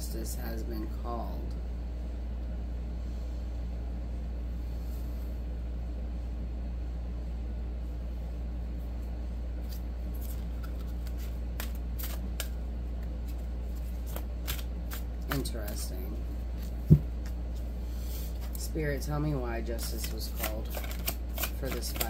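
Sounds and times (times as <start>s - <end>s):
low hum: 0.0s - 21.5s
cards being shuffled: 9.6s - 17.7s, 19.7s - 22.0s.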